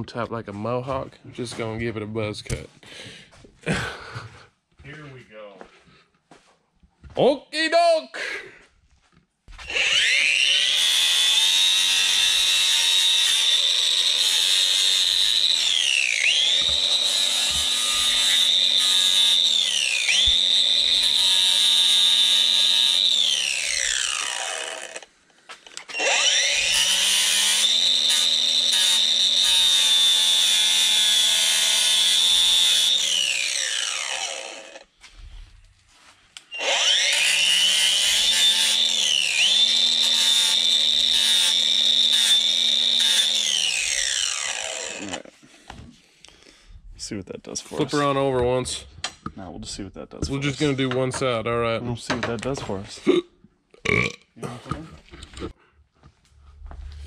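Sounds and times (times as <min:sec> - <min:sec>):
angle grinder whining: 0:09.5 - 0:34.9, 0:36.4 - 0:45.4.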